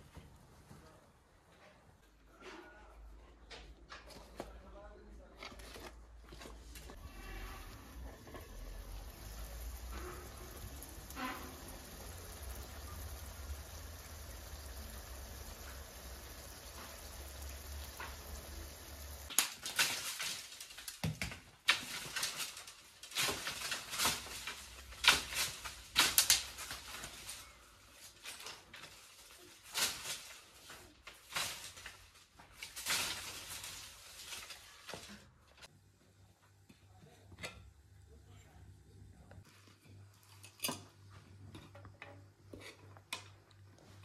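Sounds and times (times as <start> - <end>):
leaves rustling: 6.9 - 21.0, 21.8 - 35.0
faint hiss of cooking pot: 7.0 - 19.3.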